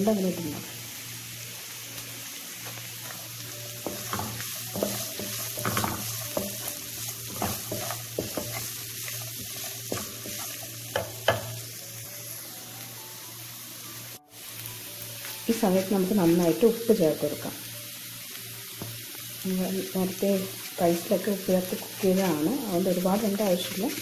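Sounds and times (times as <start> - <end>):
vegetables sizzling in wok: 0.0 - 24.0
wooden spatula scraping wok: 2.7 - 11.5.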